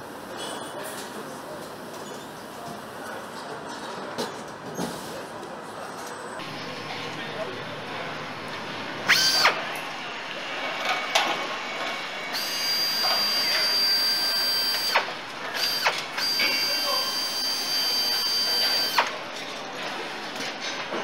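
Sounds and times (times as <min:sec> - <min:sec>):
power tool whining: 0:09.0 - 0:09.9, 0:10.8 - 0:19.2.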